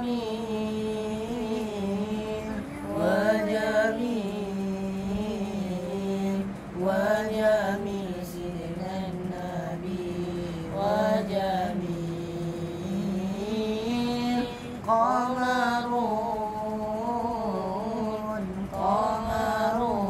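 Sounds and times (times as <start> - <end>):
boy singing unaccompanied: 0.0 - 20.0.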